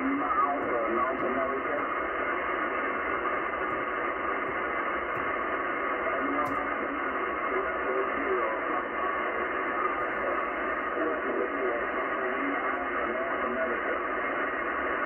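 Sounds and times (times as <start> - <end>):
faint radio voice: 0.0 - 2.1, 5.8 - 15.0
radio static hiss: 0.0 - 15.0.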